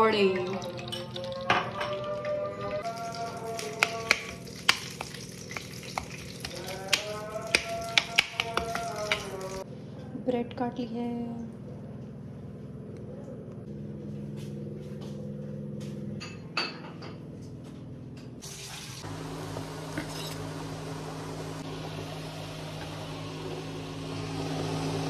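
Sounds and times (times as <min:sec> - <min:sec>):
hot oil sizzling: 0:02.8 - 0:09.6, 0:18.4 - 0:25.0.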